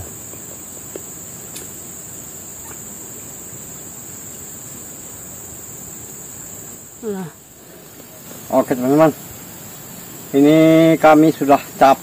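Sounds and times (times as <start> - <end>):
background hiss: 0.0 - 12.0
high-pitched insect chorus: 0.0 - 12.0
faint ticks: 4.2 - 4.5.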